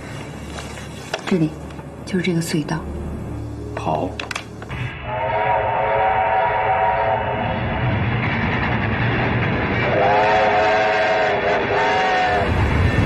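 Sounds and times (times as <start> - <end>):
train running noise: 0.0 - 13.0
steam locomotive whistle: 4.9 - 8.1, 9.7 - 13.0.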